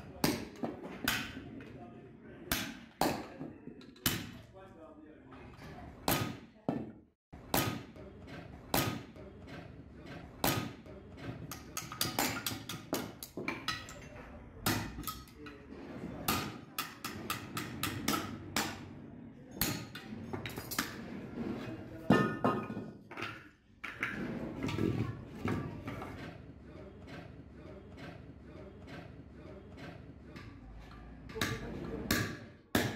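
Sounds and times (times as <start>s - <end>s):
hammer striking metal: 31.4s - 32.9s.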